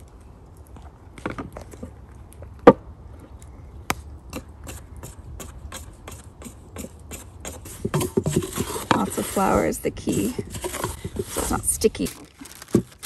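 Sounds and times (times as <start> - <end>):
wooden spoon stirring dough: 5.6 - 12.9.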